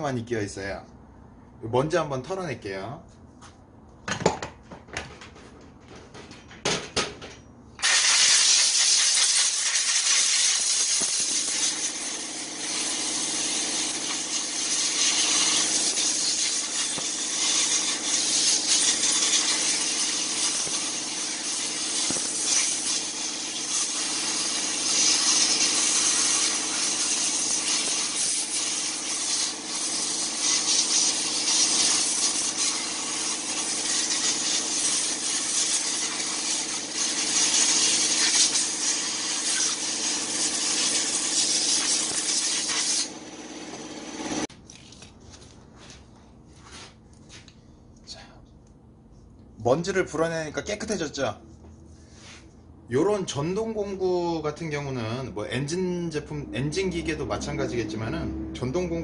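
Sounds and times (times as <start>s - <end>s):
compressed air blow gun hissing: 7.8s - 43.2s.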